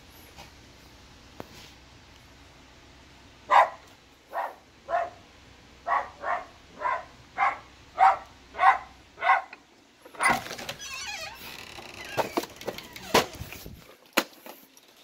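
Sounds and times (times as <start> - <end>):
dog barking: 3.5 - 5.2, 5.8 - 9.6, 10.2 - 10.4
front door opening clatter: 9.3 - 14.7.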